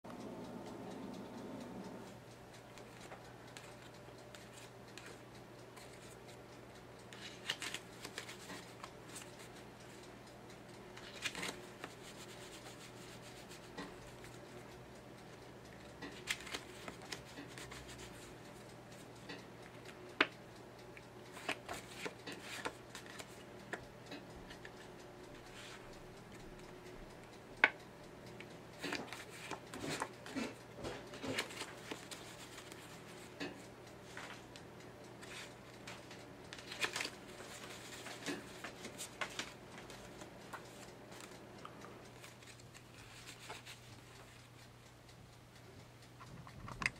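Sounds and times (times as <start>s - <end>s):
faint low hum: 0.1s - 15.9s
playing cards rustling and clicking: 2.8s - 6.2s, 7.1s - 10.0s, 10.8s - 14.4s, 16.1s - 18.3s, 21.3s - 23.9s, 28.8s - 34.5s, 35.2s - 44.4s.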